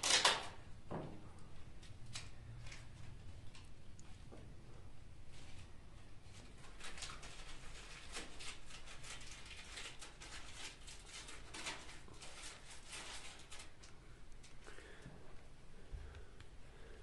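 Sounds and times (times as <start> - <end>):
party garland rustling: 5.2 - 15.0.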